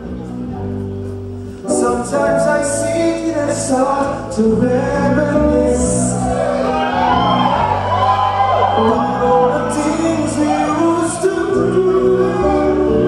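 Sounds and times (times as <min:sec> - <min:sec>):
person singing: 0:01.6 - 0:07.4, 0:08.7 - 0:13.0.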